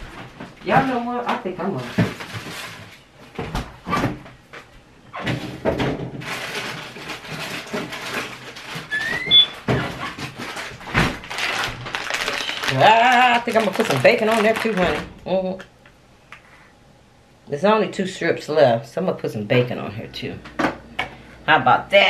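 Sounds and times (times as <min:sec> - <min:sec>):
rising squeak: 0:08.9 - 0:09.6.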